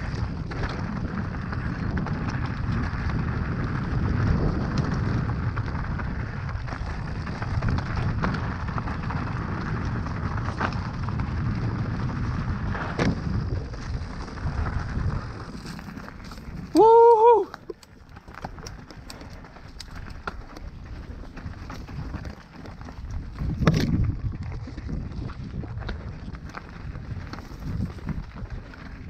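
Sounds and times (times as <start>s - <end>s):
bike tyres over dirt and rocks: 0.0s - 29.0s
bike clicks and knocks: 17.4s - 29.0s.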